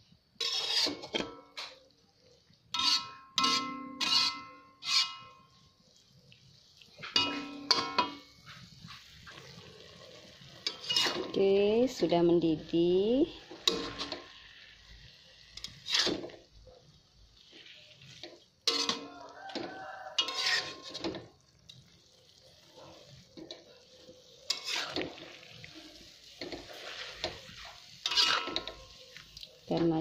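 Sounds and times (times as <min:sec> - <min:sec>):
liquid sizzling: 0:00.0 - 0:30.0
metal spatula scraping wok: 0:00.3 - 0:01.9, 0:02.7 - 0:05.6, 0:07.0 - 0:16.6, 0:17.2 - 0:30.0.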